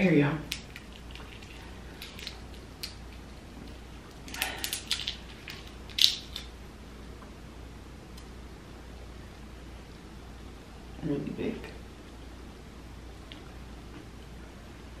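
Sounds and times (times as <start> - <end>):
prawn shell snapping: 0.5 - 3.2, 4.1 - 6.5
prawn shell crackling: 0.5 - 6.5.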